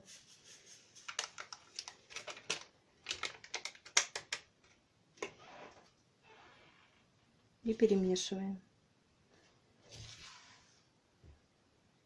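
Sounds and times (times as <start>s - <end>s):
yeast sachet crinkles and taps: 1.1s - 4.4s.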